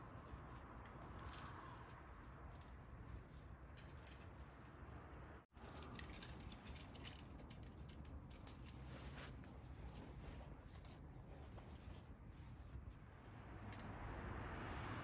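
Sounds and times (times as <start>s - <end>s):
towels rustling: 5.6s - 13.3s.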